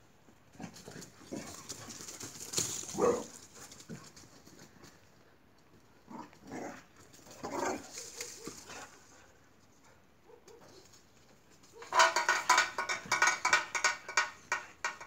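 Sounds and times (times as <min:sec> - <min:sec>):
dog barking: 0:10.2 - 0:10.8.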